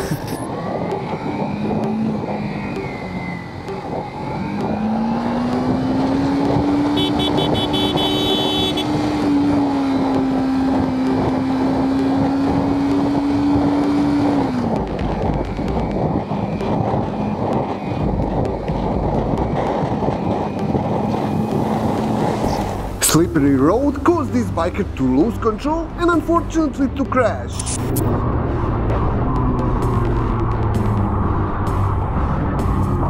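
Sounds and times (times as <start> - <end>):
wind and road noise: 0.0 - 33.0
motorcycle engine revving: 0.5 - 23.0.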